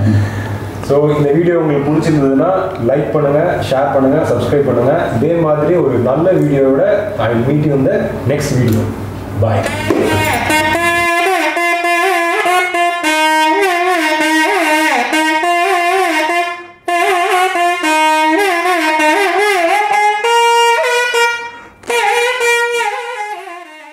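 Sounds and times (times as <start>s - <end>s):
reedy wind instrument melody: 9.6s - 23.9s.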